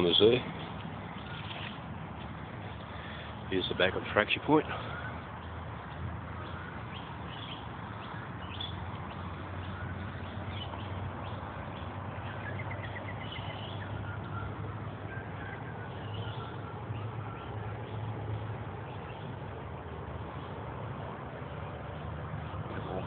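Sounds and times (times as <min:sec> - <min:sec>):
small birds chirping: 0:00.0 - 0:23.0
bird trill: 0:06.4 - 0:20.6.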